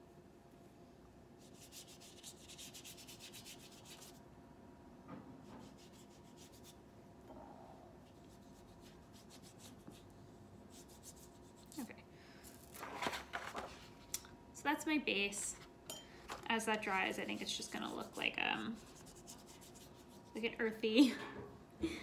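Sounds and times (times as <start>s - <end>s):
paintbrush scrubbing paper: 1.4s - 4.2s, 5.6s - 6.8s, 8.1s - 11.7s, 16.8s - 20.4s.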